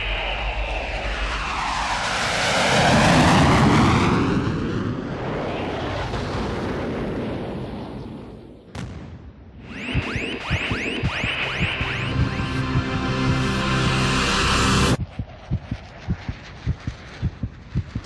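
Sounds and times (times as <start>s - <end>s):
jet car passing: 0.0s - 6.3s.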